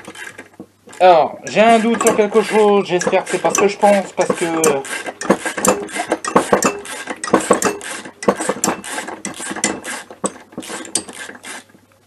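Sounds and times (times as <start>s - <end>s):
ratchet wrench clicking: 1.7s - 9.9s.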